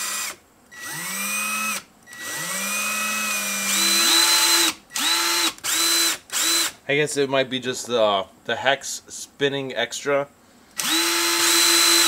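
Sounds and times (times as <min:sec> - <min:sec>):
power tool motor whine: 0:00.0 - 0:06.7, 0:10.8 - 0:12.0.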